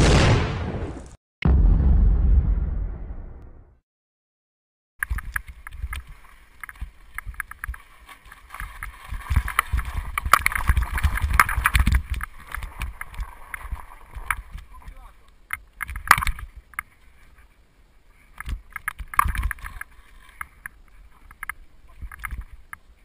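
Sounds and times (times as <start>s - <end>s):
booming intro sting: 0.0s - 3.8s
bike tyres on loose dirt: 5.0s - 23.0s.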